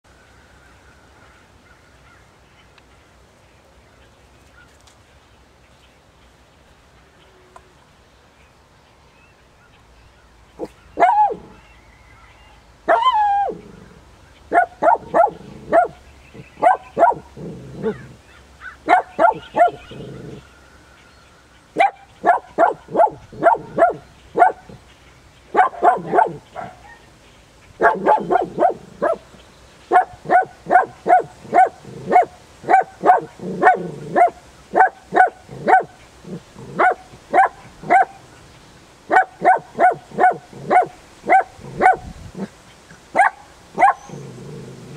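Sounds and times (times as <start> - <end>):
small dog barking: 10.6 - 11.6, 14.5 - 16.0, 16.6 - 18.1, 18.9 - 20.2, 21.8 - 24.8, 25.5 - 27.1, 27.8 - 29.2, 29.9 - 36.0, 36.7 - 38.2, 39.1 - 42.5, 43.1 - 44.2.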